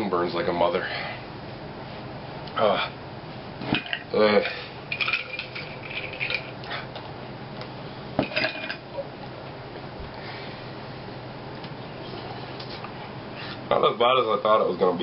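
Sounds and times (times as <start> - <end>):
faint steady hum: 0.0 - 15.0
small hard objects clinking: 4.9 - 6.6.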